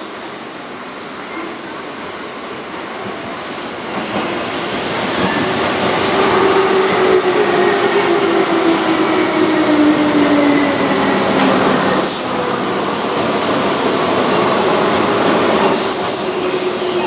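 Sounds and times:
train wheels rumbling on rails: 0:02.4 - 0:17.0
train motor hum: 0:04.2 - 0:17.0.

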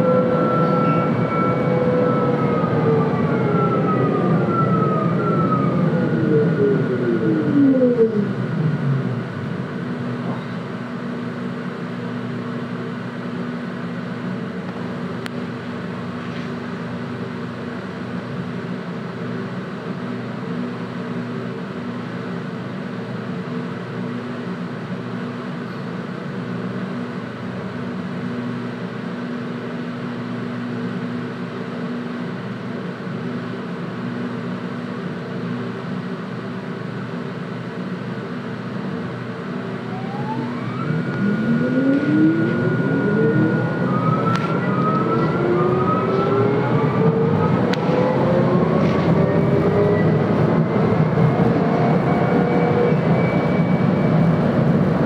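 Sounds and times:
tram equipment humming: 0:00.0 - 0:55.0.

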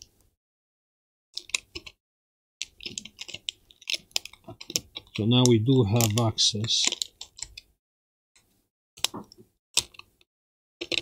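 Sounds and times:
sharp clicks and light scraping: 0:02.6 - 0:07.7.

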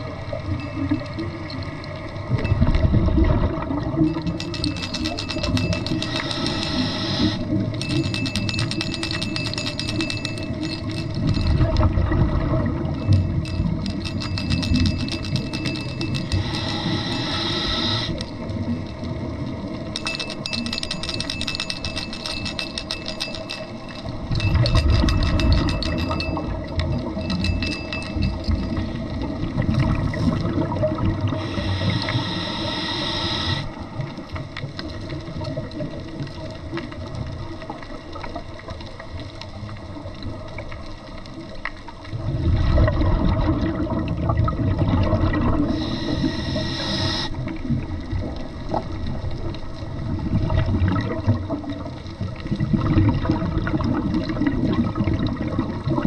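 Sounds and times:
exhaled bubbles underwater: 0:00.0 - 0:04.7, 0:11.2 - 0:14.0, 0:28.2 - 0:32.4, 0:39.5 - 0:56.0
regulator inhalation hiss: 0:06.0 - 0:07.4, 0:16.2 - 0:18.2, 0:31.3 - 0:33.7, 0:45.7 - 0:47.4.

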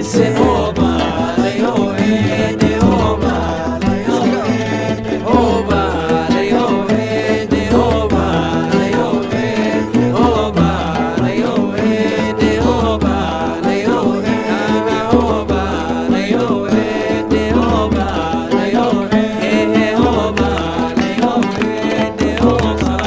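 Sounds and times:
repeating bass line: 0:00.0 - 0:16.7
music percussion: 0:00.0 - 0:23.0.

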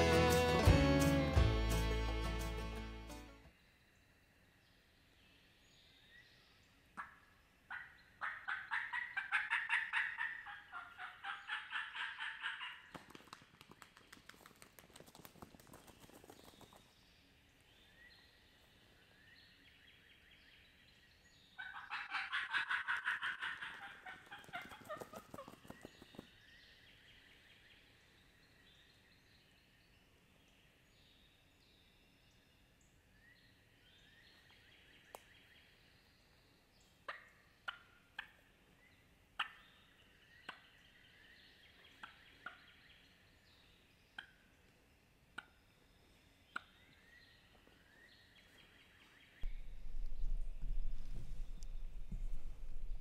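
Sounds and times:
small birds chirping: 0:04.0 - 0:22.7, 0:23.4 - 0:53.0
turkey gobbling: 0:07.0 - 0:13.0, 0:21.6 - 0:25.6, 0:37.1 - 0:38.4, 0:39.4 - 0:39.6.

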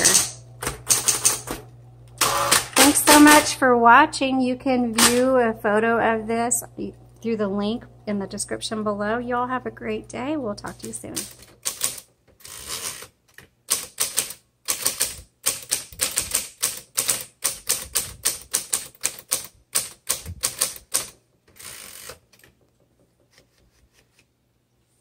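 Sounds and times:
typewriter keys striking: 0:00.0 - 0:01.5, 0:11.1 - 0:12.1, 0:13.7 - 0:22.5
carriage return whir: 0:00.0 - 0:03.4, 0:11.2 - 0:24.2
typewriter motor hum: 0:00.0 - 0:03.5, 0:10.6 - 0:22.5.

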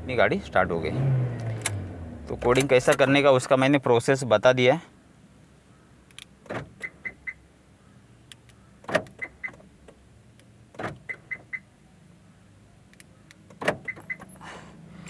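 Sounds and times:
car door locks clunking: 0:06.2 - 0:07.4, 0:08.8 - 0:10.0, 0:10.7 - 0:11.6, 0:13.4 - 0:14.4.

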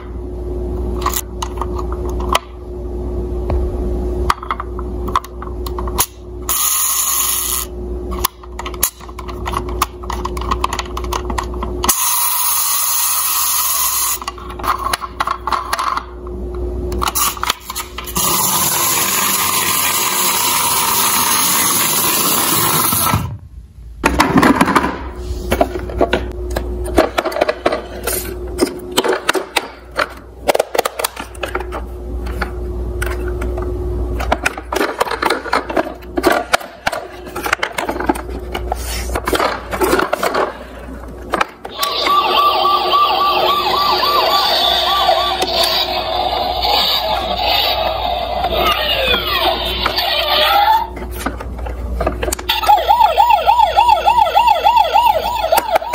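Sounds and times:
toy police siren: 0:41.7 - 0:50.9, 0:52.5 - 0:55.9
warbling toy siren wail: 0:41.7 - 0:50.9, 0:52.5 - 0:55.9.

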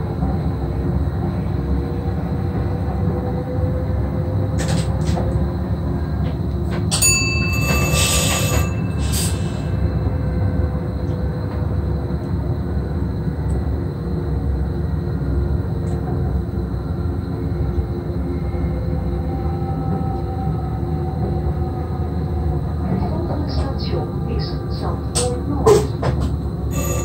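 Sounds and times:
train low rumble and hum: 0:00.0 - 0:27.0
high ringing with clatter: 0:06.9 - 0:09.7, 0:26.7 - 0:27.0.

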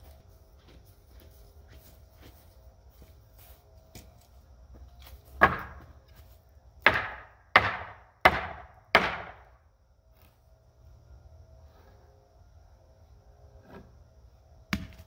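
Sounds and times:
hammer striking wood: 0:05.4 - 0:05.9, 0:06.8 - 0:09.5.

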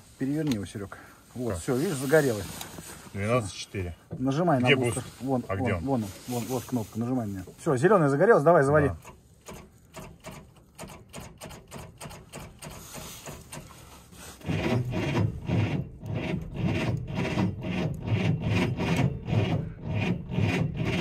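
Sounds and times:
truck engine cranking on starter: 0:08.8 - 0:21.0.

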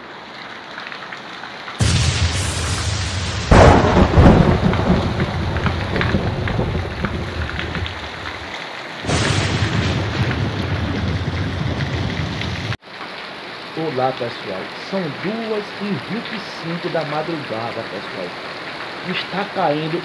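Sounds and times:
heavy rain pouring: 0:00.0 - 0:20.0
thunder rumble: 0:01.8 - 0:12.8.

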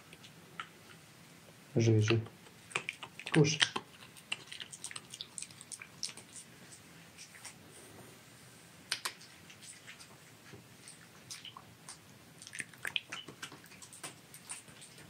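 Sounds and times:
dried treats being chewed: 0:02.1 - 0:07.6, 0:08.9 - 0:15.0.

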